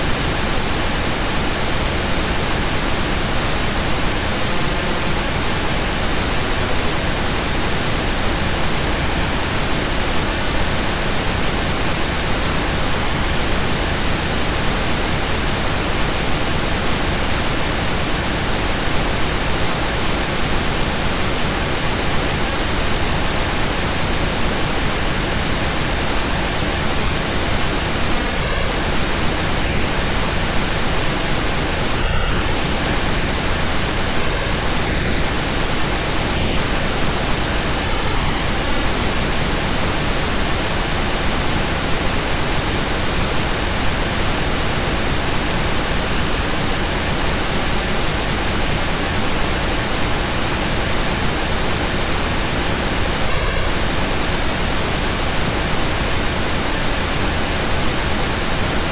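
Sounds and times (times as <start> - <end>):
steady synthetic noise hiss: 0.0 - 58.9.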